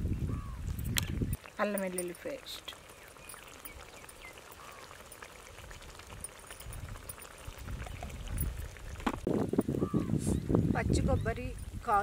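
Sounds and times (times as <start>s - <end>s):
gravy sizzling and simmering: 0.3s - 12.0s
wood fire crackles: 0.6s - 9.8s.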